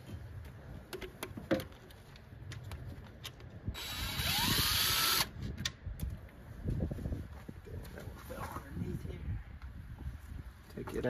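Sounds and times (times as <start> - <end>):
cordless impact driver running: 3.8 - 5.3.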